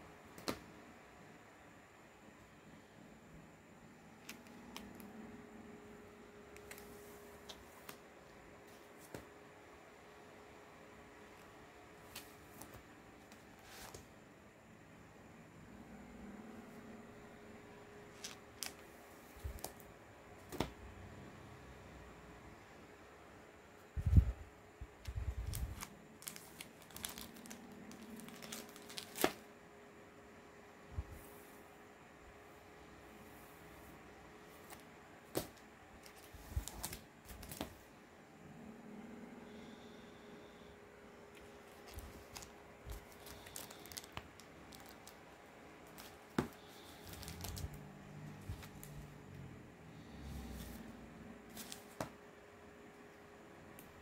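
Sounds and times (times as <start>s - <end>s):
plastic bags crinkling: 25.4s - 29.4s, 41.7s - 47.8s.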